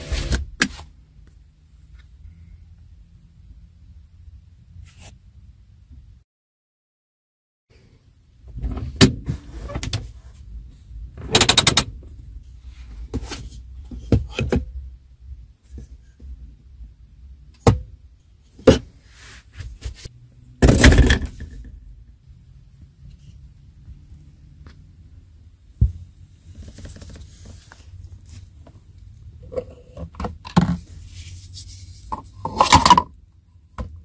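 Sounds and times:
low steady hum: 0:00.0 - 0:06.2, 0:07.7 - 0:34.0
handbrake lever: 0:11.2 - 0:12.0.

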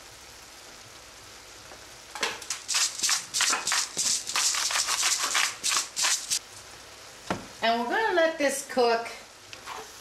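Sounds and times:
meat sizzling in a skillet: 0:00.0 - 0:07.2.

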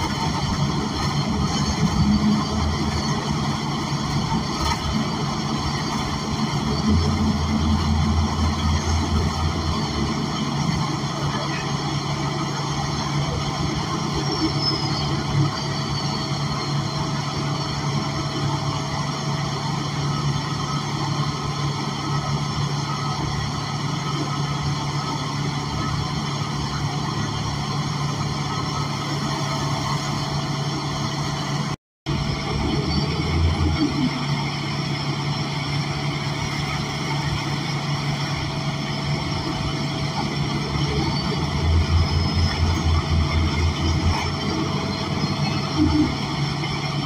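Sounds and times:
bus engine and road hum: 0:00.0 - 0:47.0.

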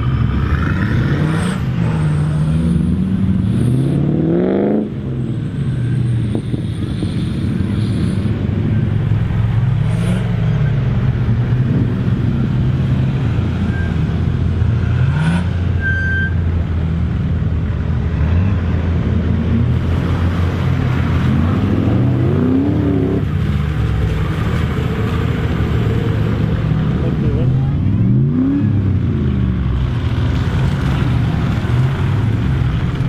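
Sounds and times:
engine revving: 0:00.0 - 0:05.1, 0:18.0 - 0:23.7.

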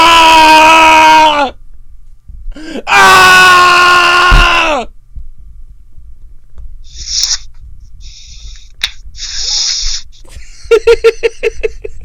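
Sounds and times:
man breathing heavily: 0:02.5 - 0:02.9.

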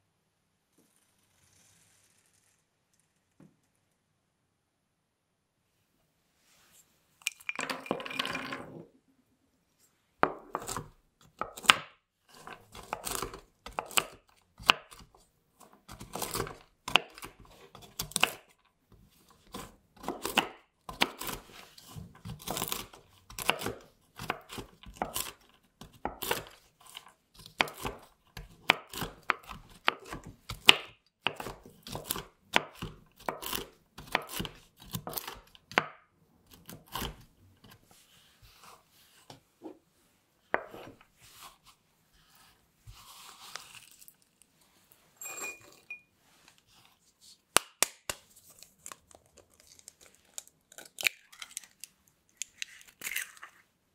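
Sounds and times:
knife chopping on wooden board: 0:10.2 - 0:15.1, 0:15.9 - 0:18.5, 0:19.5 - 0:21.4, 0:22.2 - 0:26.6, 0:27.5 - 0:35.9.

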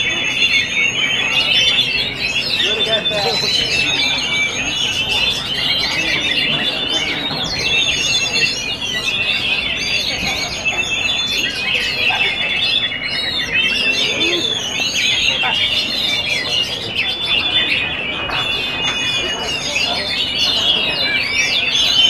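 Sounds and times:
birds singing whistles and trills: 0:00.0 - 0:22.0.

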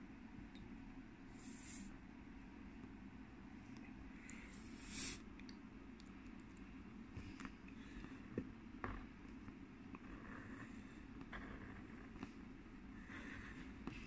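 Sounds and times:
low steady hum: 0:00.0 - 0:14.0
marker scratching on paper: 0:10.0 - 0:12.4.

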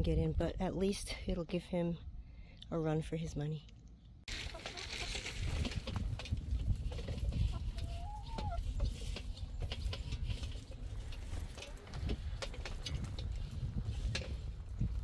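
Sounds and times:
chickens clucking: 0:04.3 - 0:13.9.

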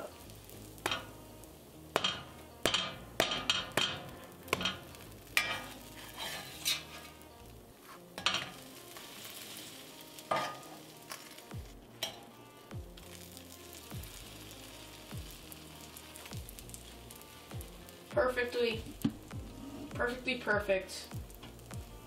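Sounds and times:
butter sizzling: 0:00.0 - 0:22.0
metal spatula scraping a pan: 0:02.0 - 0:11.4.

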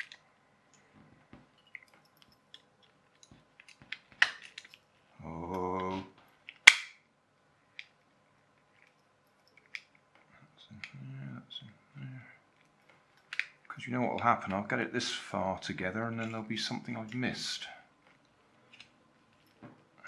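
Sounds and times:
plastic parts snapping: 0:02.5 - 0:04.8, 0:05.8 - 0:07.0, 0:13.2 - 0:13.6
plastic toy parts clicking: 0:13.2 - 0:14.3.

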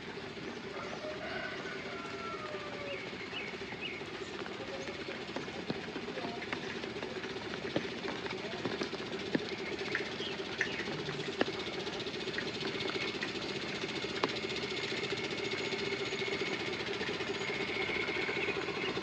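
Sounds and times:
low hum: 0:00.0 - 0:19.0
sharp drips: 0:04.7 - 0:16.4.

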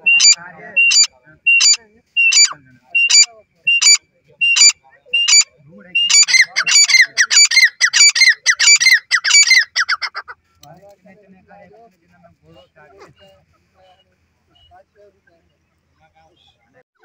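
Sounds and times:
francolin calling: 0:00.0 - 0:10.3.

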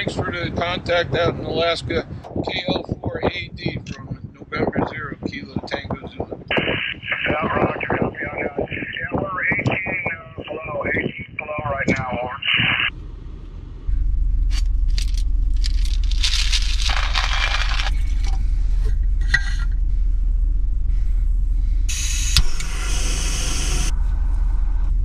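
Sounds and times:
idling engine hum: 0:12.9 - 0:25.0
rustling pour: 0:14.9 - 0:18.4.

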